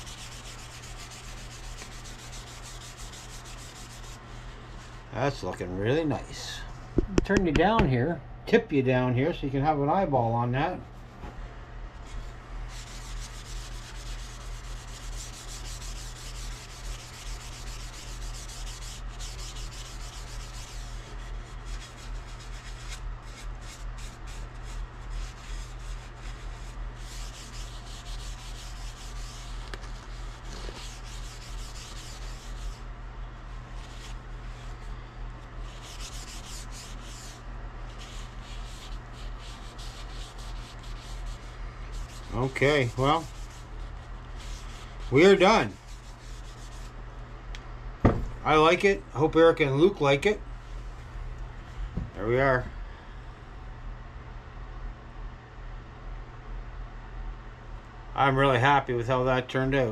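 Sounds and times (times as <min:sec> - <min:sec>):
cloth rubbing on wood: 0:00.0 - 0:05.1, 0:12.0 - 0:32.9, 0:33.5 - 0:47.0
low steady hum: 0:00.0 - 0:59.9.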